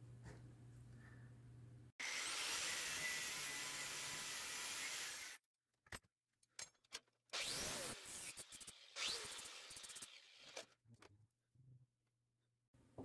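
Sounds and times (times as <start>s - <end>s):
angle grinder cutting metal: 2.0s - 5.4s, 7.4s - 10.7s.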